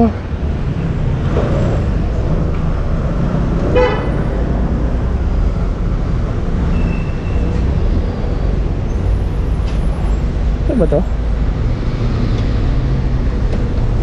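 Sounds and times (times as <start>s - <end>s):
street traffic rumbling: 0.0s - 14.0s
vehicle horn toot: 3.7s - 4.2s.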